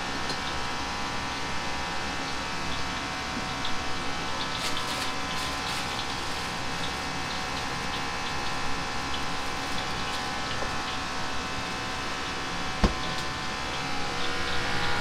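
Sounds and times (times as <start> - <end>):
kitchen equipment hum and hiss: 0.0 - 15.0
plastic bag crinkling: 4.6 - 7.1.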